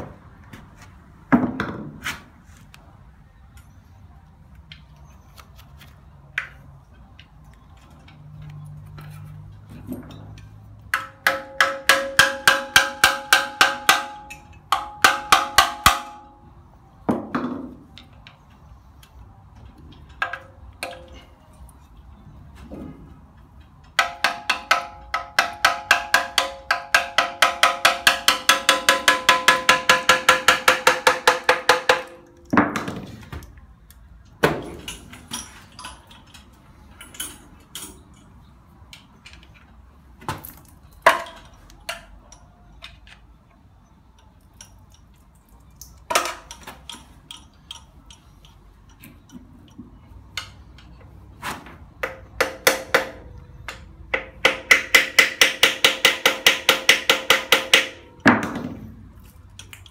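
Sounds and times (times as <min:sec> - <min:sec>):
tools and parts knocking: 0:07.8 - 0:16.4, 0:19.6 - 0:21.2, 0:22.7 - 0:33.5, 0:38.9 - 0:43.3, 0:45.8 - 0:51.1, 0:52.0 - 0:59.9.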